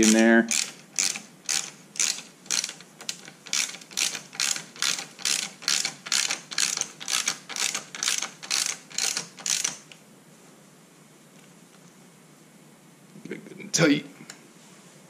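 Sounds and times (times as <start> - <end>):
ratchet wrench clicking: 0.0 - 9.8.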